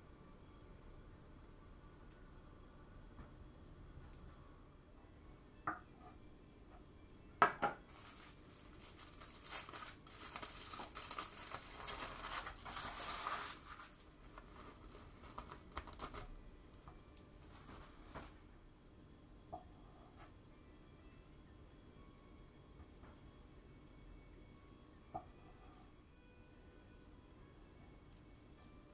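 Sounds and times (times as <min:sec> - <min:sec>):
cling wrap crinkling: 0:07.9 - 0:16.4, 0:17.3 - 0:18.4.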